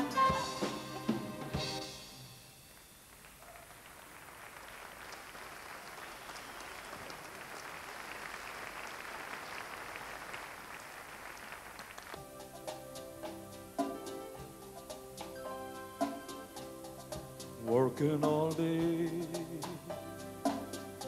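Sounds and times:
audience applauding: 0:03.1 - 0:12.3.

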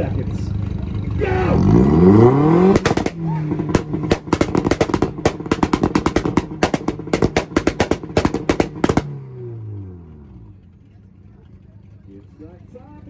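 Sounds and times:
car engine at high revs: 0:00.0 - 0:12.9
exhaust pops and cracks: 0:02.6 - 0:09.3.

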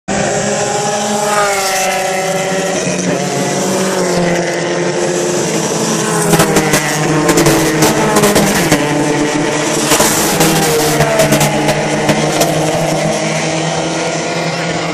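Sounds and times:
race car engines at speed: 0:00.1 - 0:14.9.

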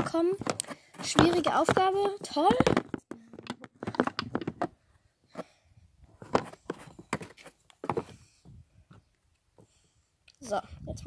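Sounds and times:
brushes knocking and clattering: 0:00.0 - 0:04.7, 0:06.2 - 0:08.1.

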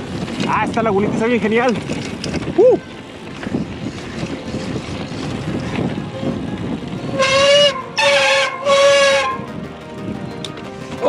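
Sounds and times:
bicycle tyres crunching through sand: 0:00.0 - 0:09.4
horn blasts: 0:07.1 - 0:09.7.

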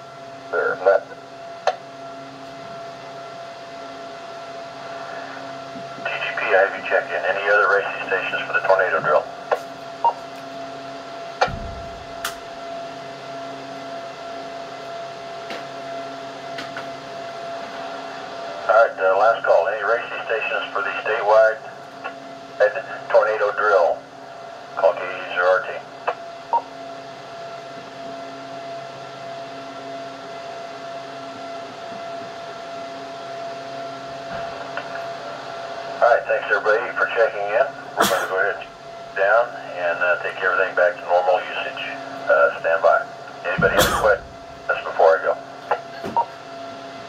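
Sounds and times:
faint steady whine: 0:00.0 - 0:47.0
radio hiss and low hum: 0:00.4 - 0:01.8, 0:04.6 - 0:10.3, 0:17.7 - 0:26.7, 0:34.3 - 0:46.4
radio squelch burst: 0:06.0 - 0:09.2, 0:24.8 - 0:25.8, 0:36.0 - 0:45.4.

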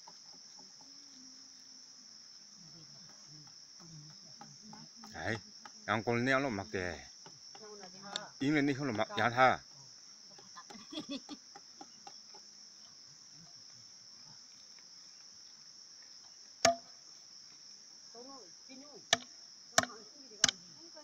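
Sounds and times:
high-pitched insect chorus: 0:00.0 - 0:21.0
machete chopping meat: 0:16.6 - 0:16.8.

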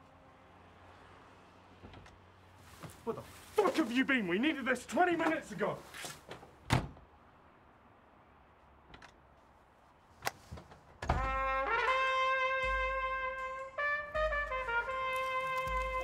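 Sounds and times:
trumpet-like brass held note: 0:11.2 - 0:16.0.

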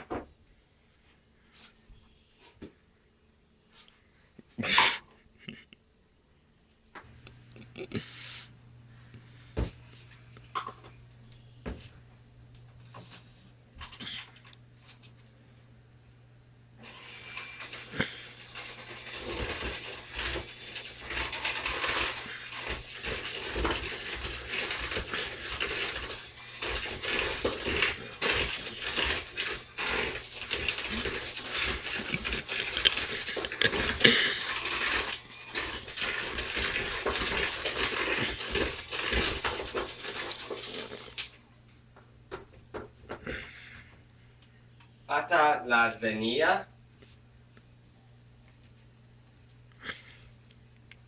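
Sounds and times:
electric hand mixer motor hum: 0:16.8 - 0:40.6.

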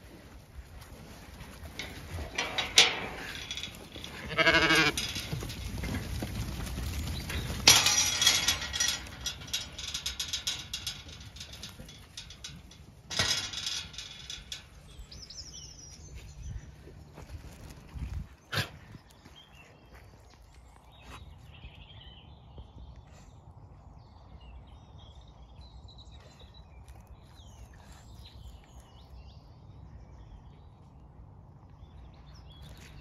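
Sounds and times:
sheep bleating: 0:04.1 - 0:05.1.

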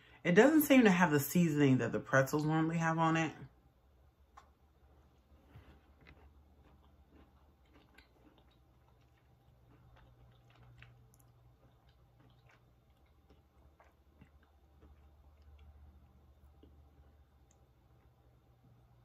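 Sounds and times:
low steady hum: 0:00.0 - 0:19.0
chewing crunchy candy: 0:05.1 - 0:18.3.

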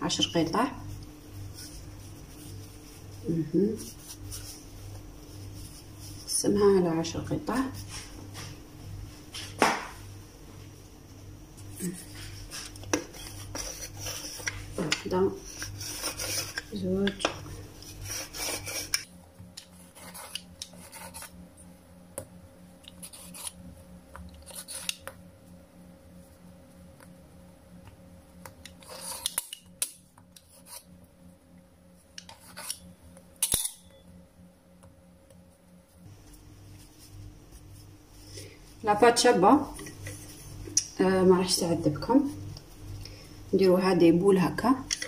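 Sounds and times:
dough scraping on countertop: 0:00.1 - 0:08.6, 0:11.6 - 0:21.5, 0:28.7 - 0:29.7.

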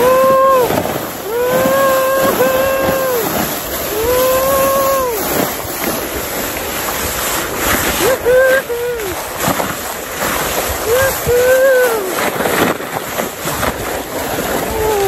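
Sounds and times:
person shouting: 0:00.0 - 0:05.5, 0:08.0 - 0:09.2, 0:10.8 - 0:12.2, 0:14.6 - 0:15.0
sled scraping down snow: 0:00.0 - 0:15.0
wind on microphone: 0:00.0 - 0:15.0.

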